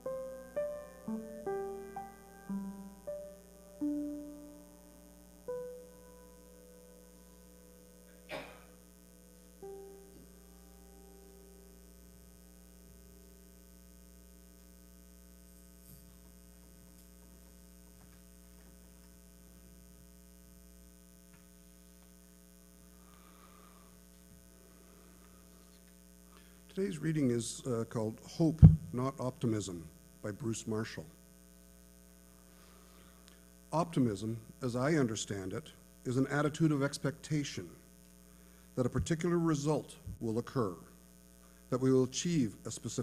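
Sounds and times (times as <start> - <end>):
music notes ringing out: 0.0 - 8.6, 9.6 - 11.7
electrical mains hum: 0.0 - 43.0.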